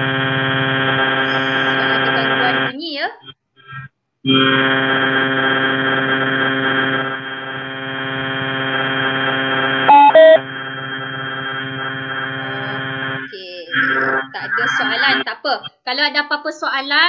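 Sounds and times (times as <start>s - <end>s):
loud electronic drone: 0.0s - 2.8s, 4.3s - 15.3s
short electronic beeps: 9.9s - 10.4s.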